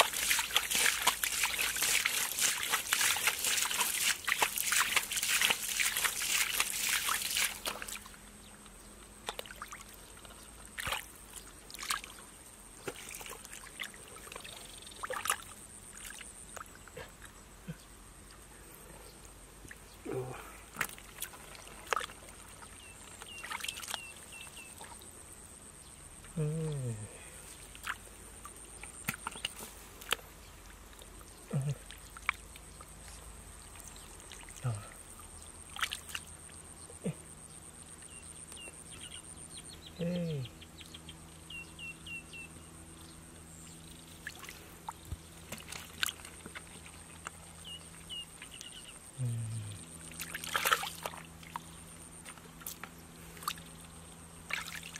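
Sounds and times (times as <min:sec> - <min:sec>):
hands splashing in muddy water: 0:00.0 - 0:08.2, 0:09.2 - 0:11.1, 0:11.7 - 0:12.2, 0:12.8 - 0:16.7, 0:20.2 - 0:24.0, 0:28.8 - 0:30.2, 0:35.7 - 0:36.3, 0:44.2 - 0:47.4, 0:50.1 - 0:53.6, 0:54.5 - 0:54.9
person grunting: 0:20.0 - 0:20.6, 0:26.4 - 0:27.3, 0:31.5 - 0:31.8, 0:40.0 - 0:40.5, 0:49.2 - 0:49.8.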